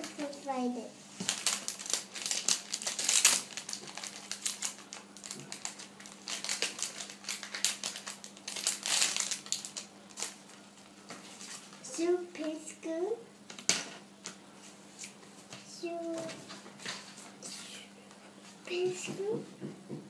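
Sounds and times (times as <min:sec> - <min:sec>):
plastic packaging crinkling: 0:01.2 - 0:10.6.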